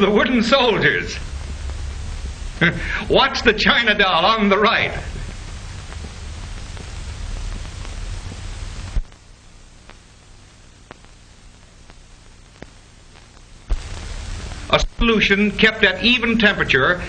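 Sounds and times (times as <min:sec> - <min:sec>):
film soundtrack hiss and crackle: 0:00.0 - 0:17.0
faint clicks: 0:05.1 - 0:09.2, 0:09.8 - 0:10.0, 0:10.8 - 0:11.2, 0:11.8 - 0:14.9
sharp pop: 0:13.7 - 0:14.1.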